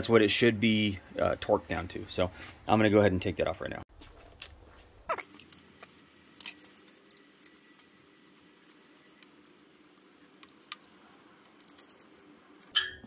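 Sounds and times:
hand tools clicking and tapping: 5.8 - 13.0.

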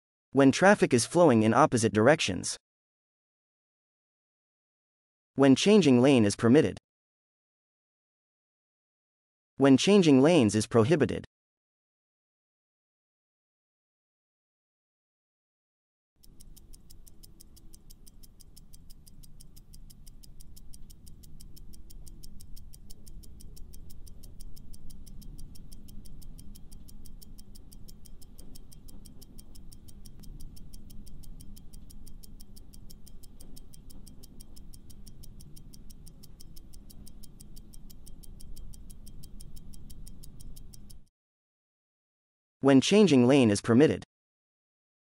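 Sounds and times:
clock ticking fast: 16.2 - 41.1.

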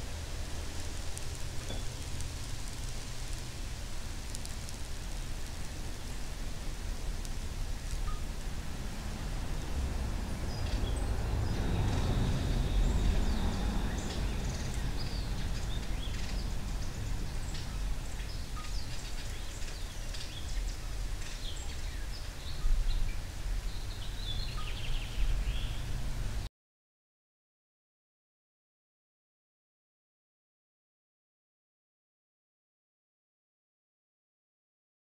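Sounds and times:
low rumble: 0.0 - 21.2
small birds chirping: 0.8 - 8.3, 9.6 - 26.0.

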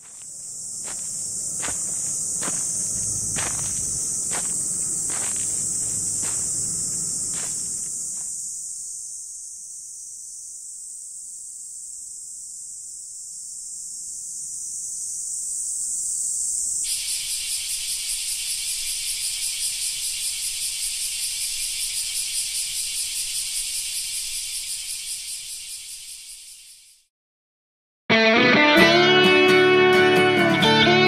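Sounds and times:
steady high hiss: 0.0 - 26.7.

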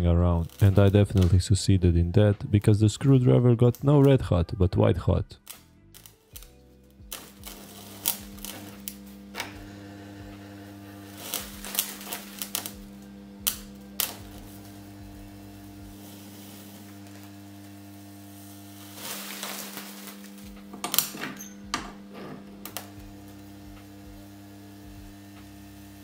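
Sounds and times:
electric arcing snaps: 0.0 - 4.2, 5.3 - 26.0
transformers humming: 0.0 - 4.7, 5.3 - 26.0.

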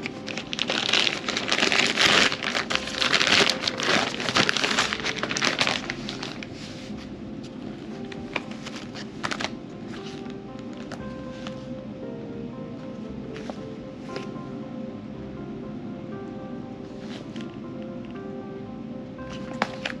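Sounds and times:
crinkly packaging rustling: 0.0 - 11.6, 19.3 - 20.0.

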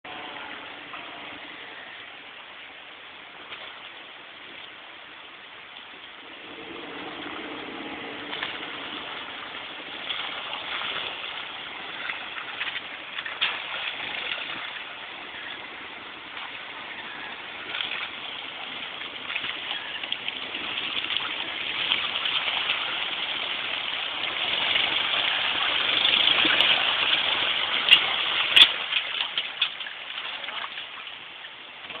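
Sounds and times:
engine running under load: 6.2 - 12.0.

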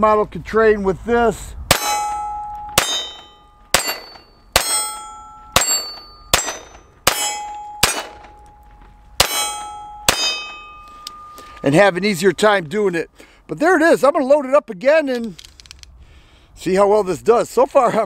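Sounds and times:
pistol shots: 1.7 - 8.4, 9.2 - 10.6
steel target ringing: 1.7 - 12.3.

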